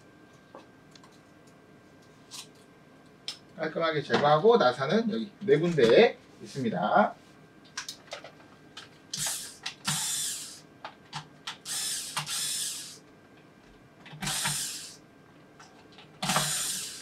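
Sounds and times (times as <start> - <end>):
electric screwdriver whirring: 9.2 - 10.6, 11.6 - 13.0, 14.2 - 15.0, 16.2 - 17.0.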